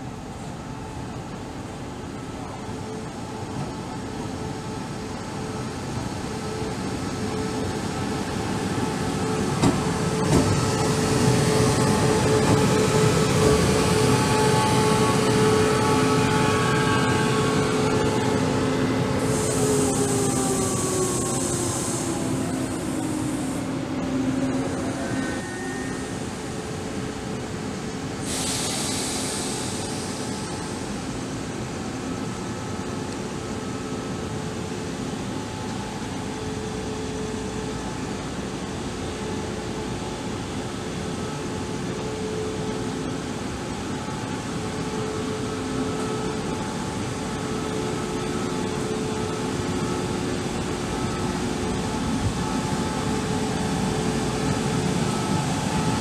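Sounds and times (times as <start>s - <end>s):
train humming: 0.0s - 56.0s
brief hiss: 28.2s - 30.8s.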